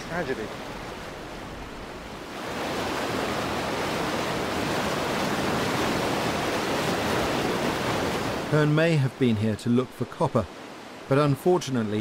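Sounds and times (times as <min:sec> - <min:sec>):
rapids rushing over rocks: 0:00.0 - 0:12.0.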